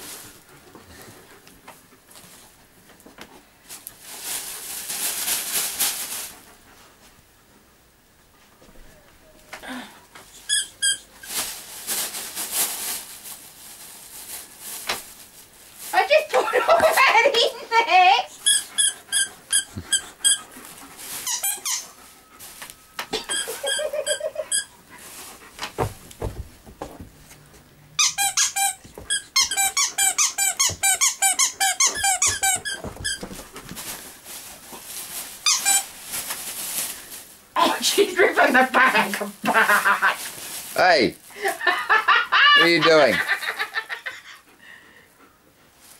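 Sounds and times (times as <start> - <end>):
dog rustling in bag: 3.6 - 6.6, 11.1 - 17.6, 20.3 - 26.9, 28.2 - 38.6, 39.3 - 41.3
dog toy squeaker: 10.4 - 11.1, 18.4 - 20.5, 21.2 - 22.0, 23.2 - 24.7, 28.0 - 33.2, 35.4 - 35.9
soft knocks and rustling: 25.4 - 27.7.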